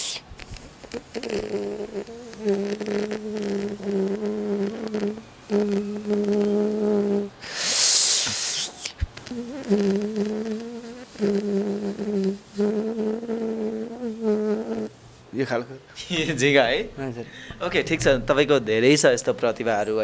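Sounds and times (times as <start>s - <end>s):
man imitating fly buzzing: 0.0s - 15.0s
hissing rush of breath: 7.4s - 9.6s.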